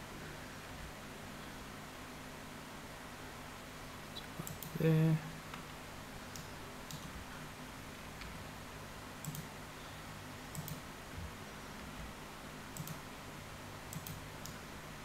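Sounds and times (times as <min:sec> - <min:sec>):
faint steady hum: 0:00.0 - 0:15.0
mouse and keyboard clicks: 0:09.2 - 0:09.5, 0:10.5 - 0:10.8, 0:12.8 - 0:13.0, 0:13.9 - 0:14.6.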